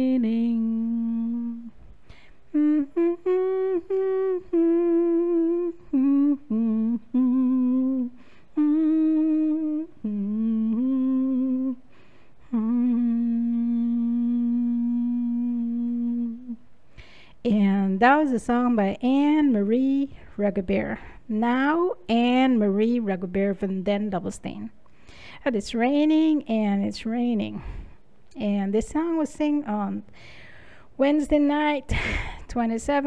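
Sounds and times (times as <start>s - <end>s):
woman humming: 0.0s - 1.8s, 2.5s - 11.8s, 12.4s - 16.7s
breaths: 1.9s - 2.5s, 8.2s - 8.6s, 11.8s - 12.5s, 16.9s - 17.4s, 21.0s - 21.3s, 24.8s - 25.5s, 27.6s - 28.1s, 30.1s - 31.0s, 31.9s - 32.5s.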